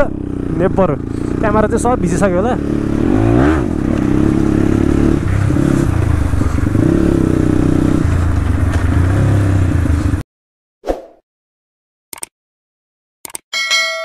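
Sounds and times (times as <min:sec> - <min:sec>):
motorcycle engine running: 0:00.0 - 0:10.2.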